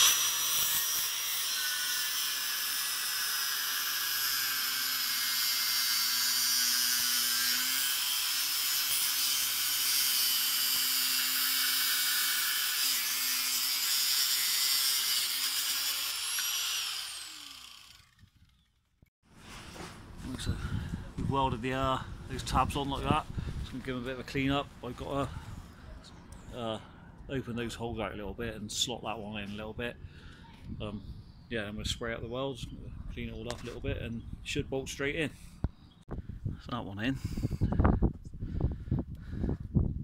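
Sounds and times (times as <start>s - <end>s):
angle grinder cutting metal: 0.0s - 18.4s.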